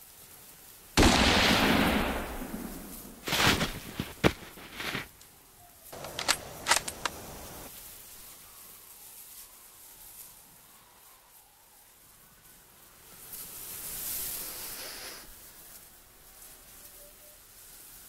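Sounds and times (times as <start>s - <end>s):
loud gunshot: 1.0s - 5.0s
sharp clicks and knocks: 6.0s - 7.2s.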